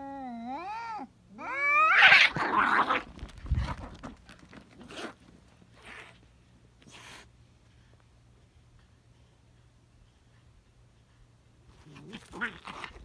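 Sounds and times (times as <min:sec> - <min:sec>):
cats yowling and screeching: 0:00.0 - 0:03.0.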